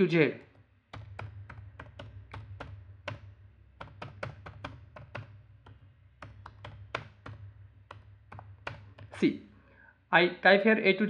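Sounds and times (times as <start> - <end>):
computer keyboard typing: 0.5 - 9.2.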